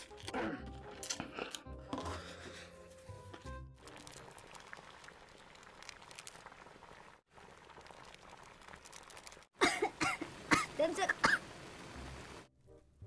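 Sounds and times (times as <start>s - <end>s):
water boiling in a pan: 3.8s - 12.5s.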